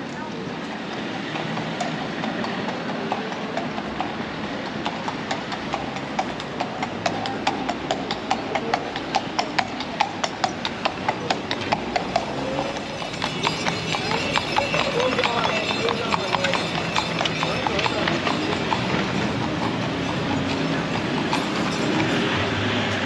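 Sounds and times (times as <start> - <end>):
horse hooves on pavement: 0.0 - 23.0
street background noise: 0.0 - 23.0.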